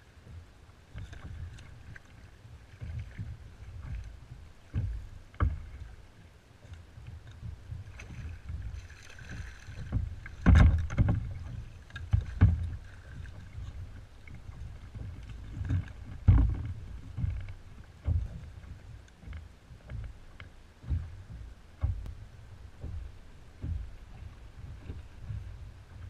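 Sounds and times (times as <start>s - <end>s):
water splashing: 0.0s - 26.0s
knocks and thuds against kayak hull: 0.2s - 26.0s
wind on microphone: 20.8s - 26.0s.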